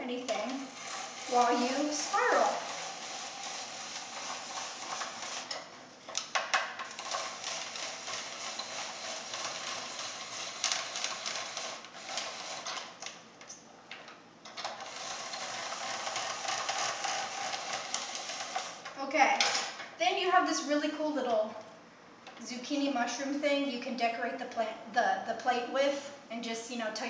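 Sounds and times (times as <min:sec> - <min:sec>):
spiralizer clicking and scraping: 0:00.0 - 0:13.2, 0:14.5 - 0:19.0.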